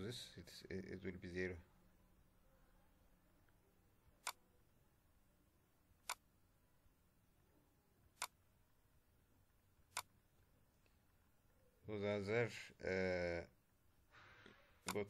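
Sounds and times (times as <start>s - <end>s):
computer mouse clicks: 6.0s - 6.2s, 8.2s - 8.4s, 9.9s - 10.1s.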